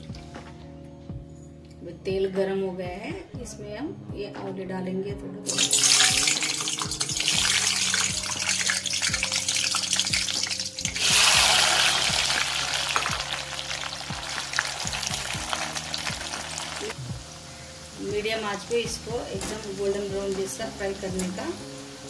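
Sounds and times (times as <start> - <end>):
food sizzling in hot oil: 5.5 - 22.0.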